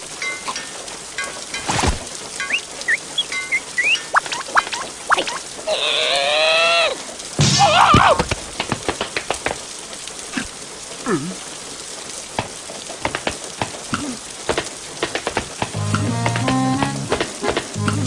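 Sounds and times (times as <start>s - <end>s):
rain falling: 0.0s - 18.0s
drip clicks: 2.4s - 5.4s
held musical tones: 2.4s - 5.4s.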